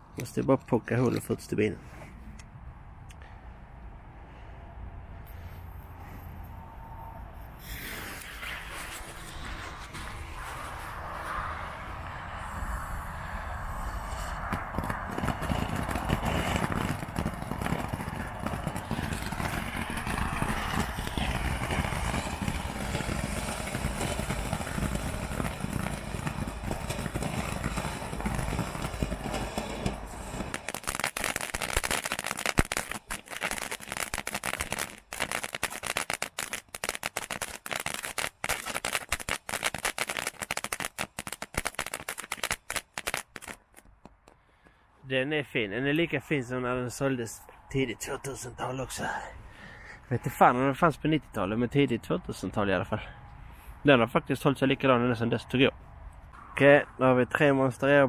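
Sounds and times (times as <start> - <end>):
firework fountain hissing and crackling: 7.6 - 43.8.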